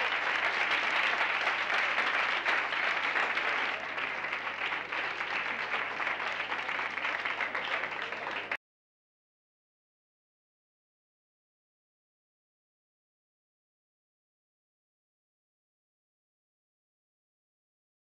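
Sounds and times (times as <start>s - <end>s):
audience clapping: 0.0s - 8.6s.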